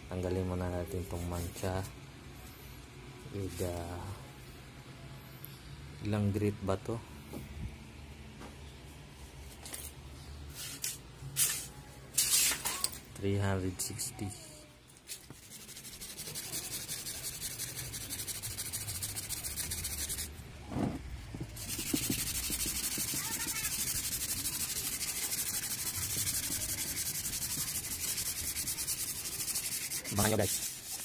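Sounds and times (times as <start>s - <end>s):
sandpaper scraping plastic: 15.1s - 20.3s, 21.5s - 31.0s.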